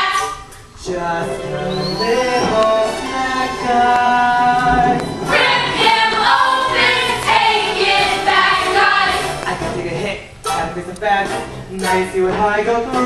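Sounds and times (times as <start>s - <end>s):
young voices singing in chorus: 1.2s - 9.4s.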